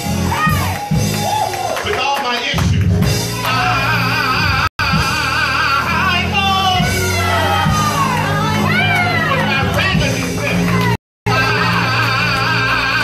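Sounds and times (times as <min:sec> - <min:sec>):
band accompaniment: 0:00.0 - 0:13.0
gospel singers on microphones: 0:03.3 - 0:10.0, 0:10.6 - 0:13.0.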